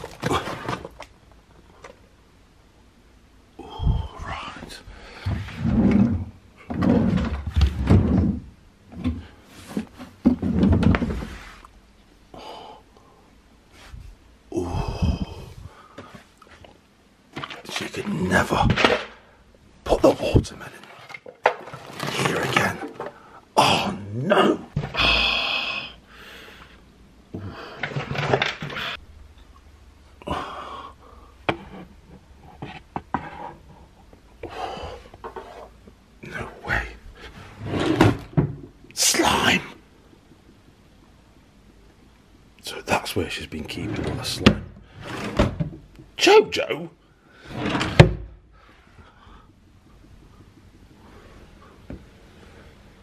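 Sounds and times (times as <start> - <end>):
drawers and cupboard doors opening: 0.0 - 1.1, 5.2 - 11.7, 20.2 - 23.2, 27.7 - 29.0, 37.4 - 38.7, 43.8 - 45.9, 47.4 - 48.4
rummaging through contents: 0.0 - 2.0, 20.0 - 23.2.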